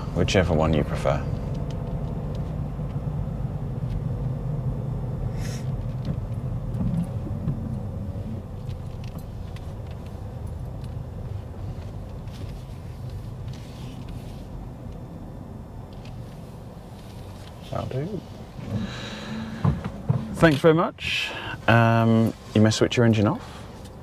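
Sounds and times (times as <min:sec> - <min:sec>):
car engine and tyres rumbling: 0:00.0 - 0:24.0
brief hiss: 0:05.3 - 0:05.7.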